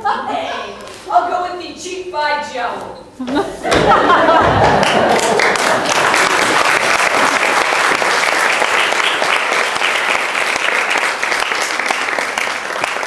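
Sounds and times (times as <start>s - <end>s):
audience applauding: 4.2s - 13.0s.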